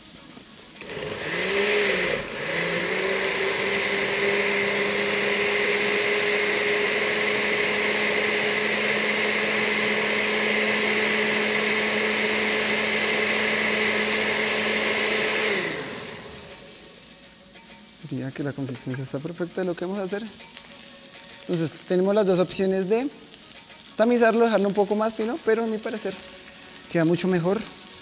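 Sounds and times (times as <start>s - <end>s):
blender motor running: 0.8s - 17.0s.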